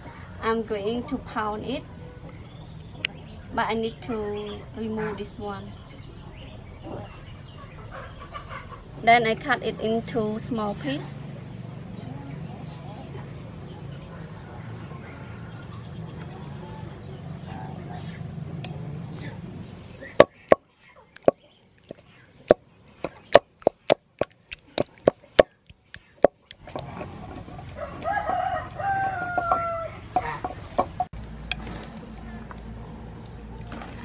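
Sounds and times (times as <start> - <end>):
wooden pestle pounding in mortar: 20.2 - 26.6
rooster crowing: 27.7 - 30.2.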